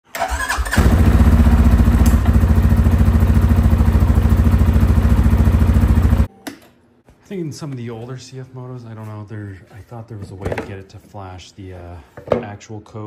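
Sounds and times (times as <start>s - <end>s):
electric starter cranking engine: 0.1s - 2.3s
engine idling: 0.7s - 6.3s.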